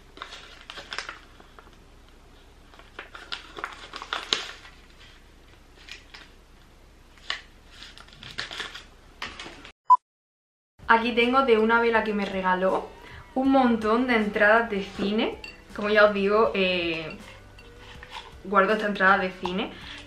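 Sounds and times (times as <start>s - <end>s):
paper rustling and crinkling: 0.0s - 6.4s, 7.1s - 9.7s.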